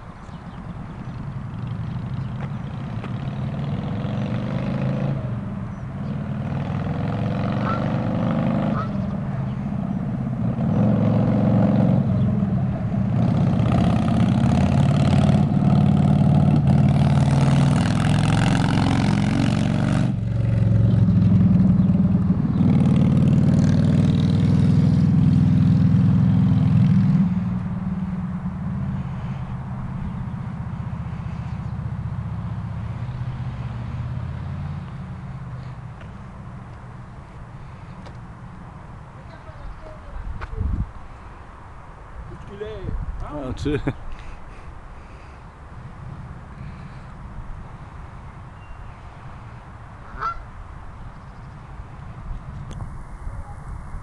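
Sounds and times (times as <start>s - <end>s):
motorcycle passing: 0.0s - 54.0s.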